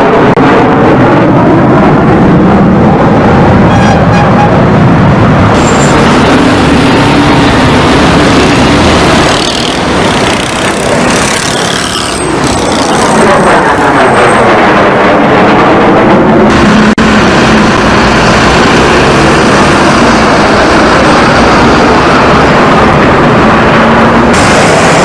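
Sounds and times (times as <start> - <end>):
jet engine roar: 0.0 - 25.0.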